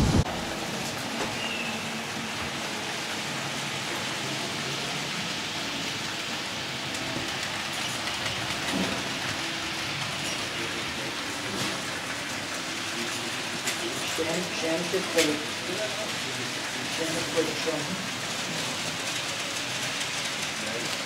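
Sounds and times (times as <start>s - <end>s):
model train rolling on track: 0.0s - 21.0s.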